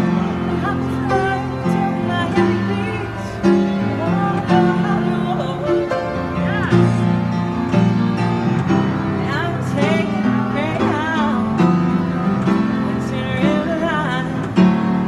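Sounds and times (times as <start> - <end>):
woman singing with vibrato: 0.0 - 7.7, 8.7 - 15.0
held keyboard chords: 0.0 - 15.0.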